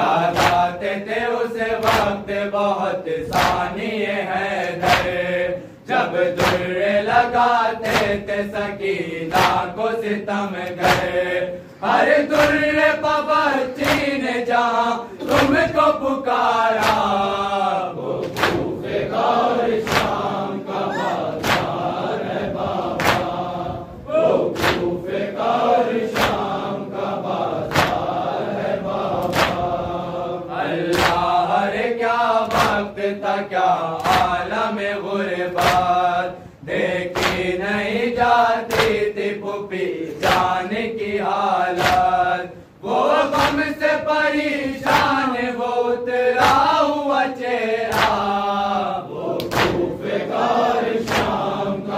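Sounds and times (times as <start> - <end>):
men chanting a lament: 0.0 - 51.9
hands slapping on chests: 0.2 - 0.7, 1.8 - 2.2, 3.3 - 3.7, 4.6 - 5.2, 6.3 - 6.8, 7.8 - 8.3, 9.3 - 9.7, 10.6 - 11.2, 12.3 - 12.7, 13.8 - 14.2, 15.2 - 15.7, 16.8 - 17.2, 18.2 - 18.7, 19.8 - 20.3, 21.2 - 22.0, 22.9 - 23.4, 24.6 - 24.9, 26.1 - 26.6, 27.6 - 28.2, 29.2 - 29.7, 30.8 - 31.3, 32.4 - 32.8, 34.0 - 34.4, 35.6 - 36.0, 37.1 - 37.5, 38.7 - 39.1, 40.2 - 40.6, 41.8 - 42.2, 43.3 - 43.7, 44.8 - 45.2, 46.4 - 46.8, 47.9 - 48.2, 49.4 - 49.9, 51.0 - 51.5.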